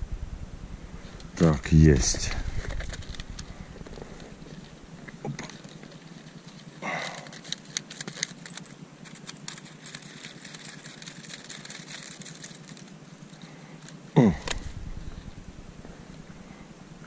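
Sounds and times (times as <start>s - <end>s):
steady low hum: 0.0s - 17.0s
plastic clicks and crackles: 2.6s - 14.6s
rustle of fishing line: 5.4s - 14.0s.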